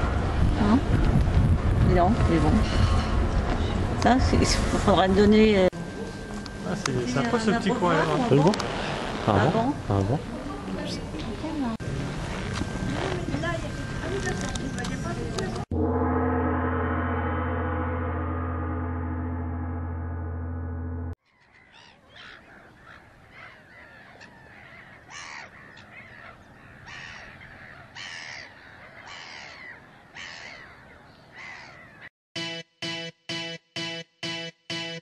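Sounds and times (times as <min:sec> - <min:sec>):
deep gong-like tone: 0:15.7 - 0:21.2
gulls calling: 0:21.4 - 0:32.1.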